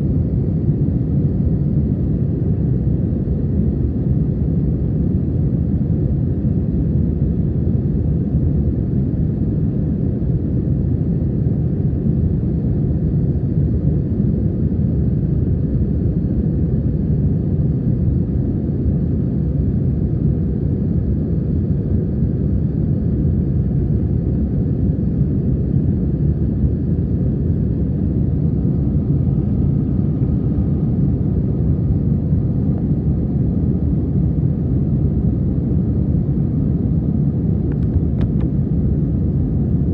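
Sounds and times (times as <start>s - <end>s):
jet engines rumbling: 24.8s - 39.9s.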